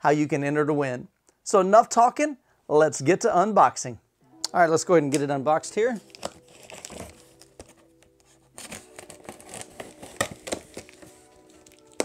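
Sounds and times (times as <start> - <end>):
cardboard crinkling: 5.9 - 12.0
tape tearing: 6.0 - 12.0
knife slicing packing tape: 8.6 - 12.0.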